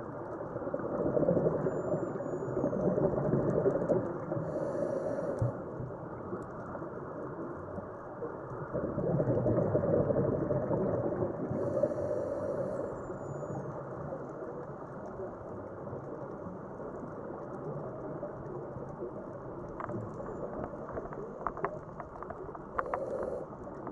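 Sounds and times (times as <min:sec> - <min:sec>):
faint sharp clicks: 0:11.8 - 0:23.9
muffled underwater rushing: 0:17.9 - 0:23.9.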